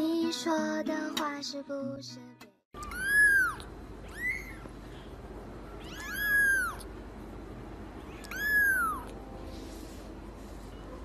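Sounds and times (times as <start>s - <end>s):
kitten meowing: 2.8s - 4.7s, 5.7s - 6.9s, 8.1s - 9.2s.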